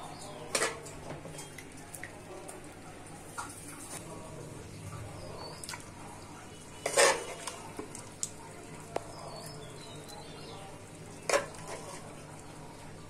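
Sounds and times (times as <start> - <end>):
spoon scraping a pan: 0.3 - 1.5, 6.6 - 7.9, 11.2 - 12.2.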